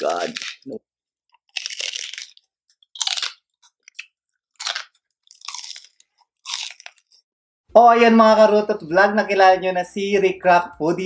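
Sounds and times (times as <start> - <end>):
crunchy chewing: 0.0 - 7.2.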